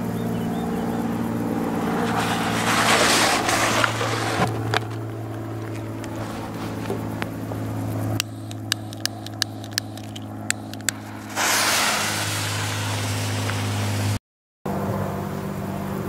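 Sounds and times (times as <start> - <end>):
low hum: 0.0 - 16.0
firework hissing: 1.8 - 4.5, 8.4 - 14.2
firework sputtering and crackling: 1.8 - 4.9, 8.2 - 14.2.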